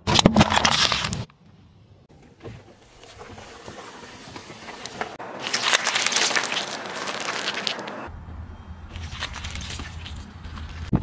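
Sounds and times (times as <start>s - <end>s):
tyre crushing fruit: 3.1s - 8.1s.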